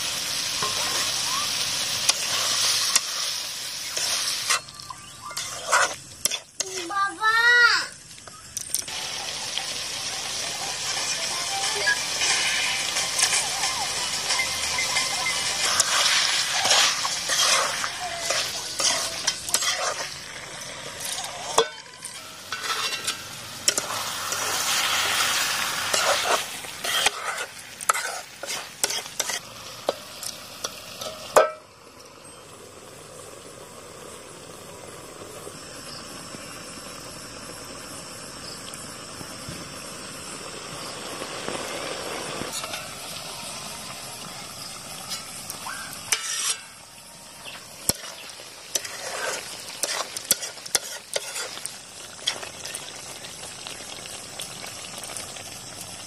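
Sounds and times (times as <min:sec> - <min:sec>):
curry frying in oil: 0:00.0 - 0:56.0
spoon scraping a pan: 0:02.0 - 0:07.0, 0:14.3 - 0:20.2, 0:21.0 - 0:25.2, 0:25.8 - 0:30.0, 0:46.1 - 0:46.8, 0:47.9 - 0:52.4.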